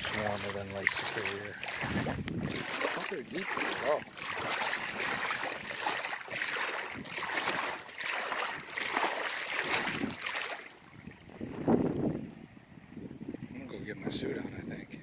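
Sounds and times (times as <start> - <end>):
feet splashing through water: 0.0 - 11.9.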